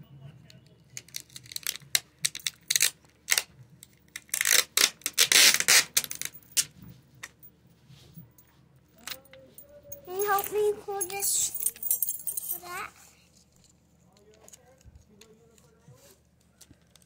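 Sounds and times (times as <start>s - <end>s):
cardboard and tape scraping: 4.2s - 6.3s.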